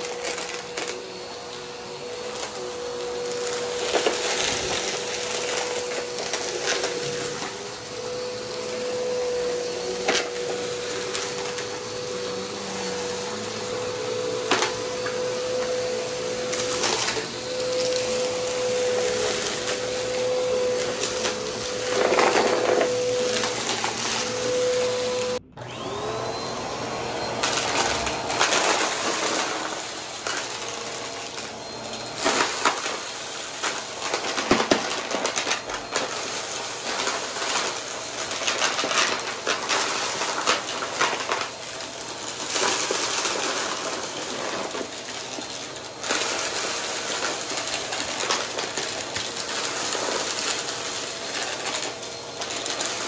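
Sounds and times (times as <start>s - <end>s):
vacuum cleaner running: 0.0s - 53.0s
debris crackling in vacuum: 27.4s - 53.0s.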